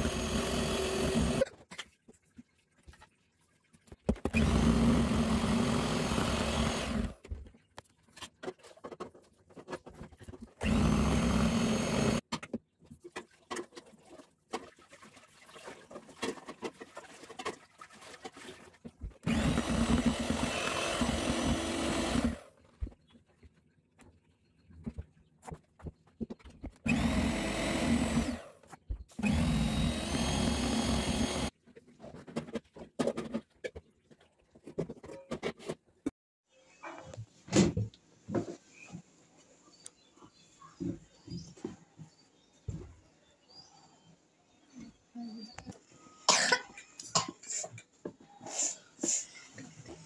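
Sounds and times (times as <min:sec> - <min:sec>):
electric hand mixer whipping: 0:00.0 - 0:01.4, 0:04.3 - 0:07.2, 0:10.6 - 0:12.2, 0:19.2 - 0:22.4, 0:26.9 - 0:28.5, 0:29.2 - 0:31.5.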